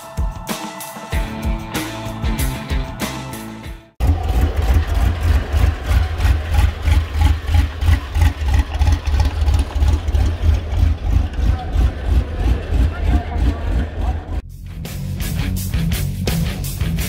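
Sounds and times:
truck engine idling: 0:04.0 - 0:14.4.

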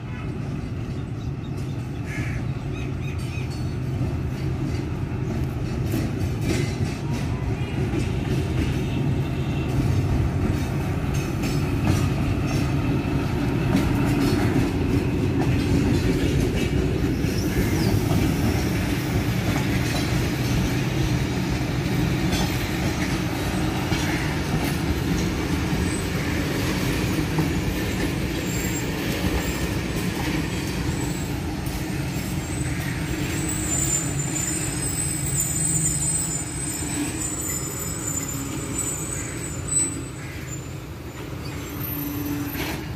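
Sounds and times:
train wheels clattering on rails: 0:00.1 - 0:42.9
high wheel squeal: 0:27.4 - 0:29.9, 0:32.2 - 0:42.9.

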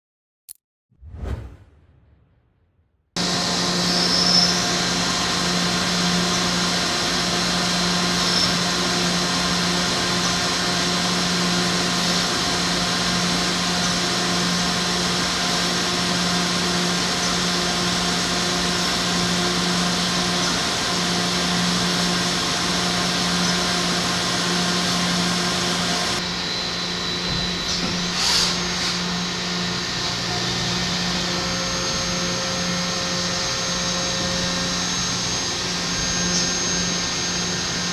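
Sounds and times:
brief swish: 0:01.0 - 0:02.7
machine hum with low tone: 0:03.2 - 0:37.9.

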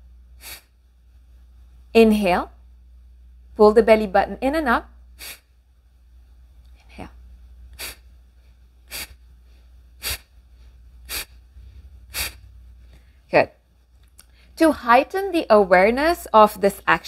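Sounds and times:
woman exhaling sharply through nose: 0:00.4 - 0:00.7, 0:05.2 - 0:05.5, 0:07.8 - 0:08.0, 0:08.9 - 0:09.2, 0:10.0 - 0:10.3, 0:11.0 - 0:12.5.

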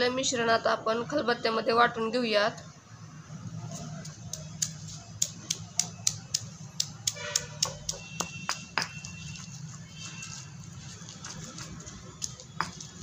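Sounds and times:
pestle pounding in stone mortar: 0:04.6 - 0:09.2, 0:11.3 - 0:13.0.

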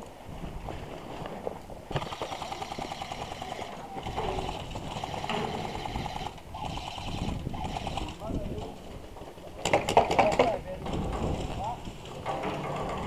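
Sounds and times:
airsoft guns firing full-auto: 0:01.9 - 0:08.2.

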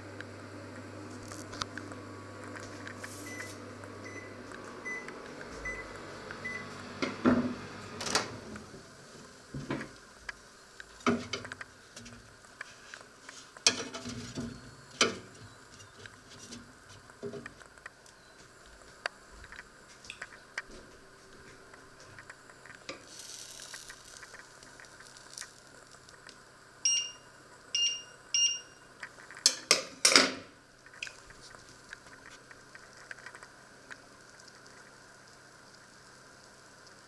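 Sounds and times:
microwave oven hum: 0:00.0 - 0:29.1.

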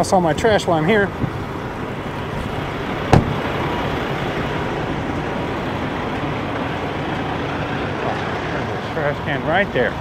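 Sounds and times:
road traffic: 0:00.0 - 0:10.0
sharp knock: 0:03.1 - 0:03.5.

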